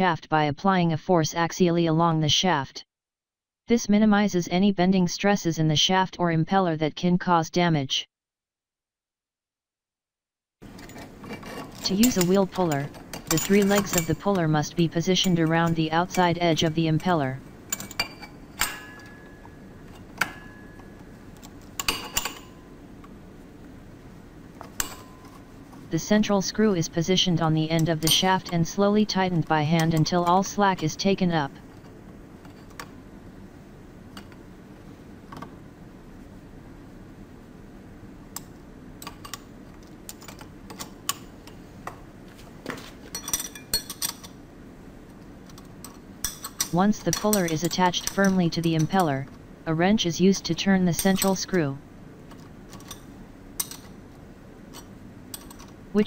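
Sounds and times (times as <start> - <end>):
steel puller clinking on metal: 10.8 - 14.3.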